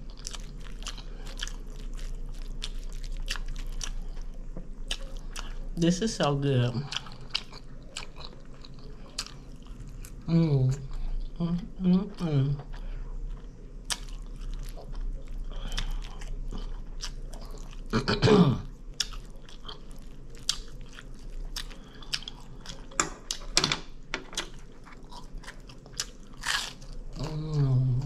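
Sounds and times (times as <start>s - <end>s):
chewing and biting: 0.0s - 5.8s, 6.6s - 10.3s, 12.6s - 17.9s, 18.8s - 23.5s, 24.4s - 27.8s
person humming: 27.2s - 28.0s.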